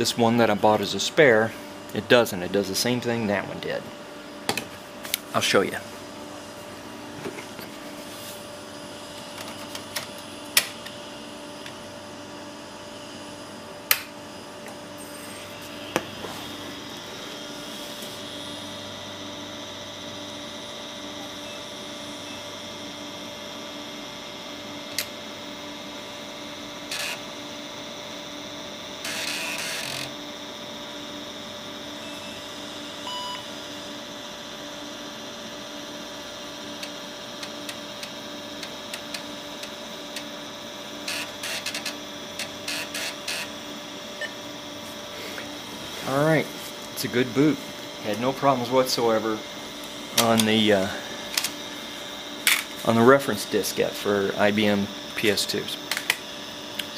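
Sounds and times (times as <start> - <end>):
computer fan hum: 0.0 - 56.9
floppy drive clicks and grinding: 8.8 - 12.0, 13.0 - 31.1, 35.9 - 56.9
short computer beep: 33.1 - 33.4.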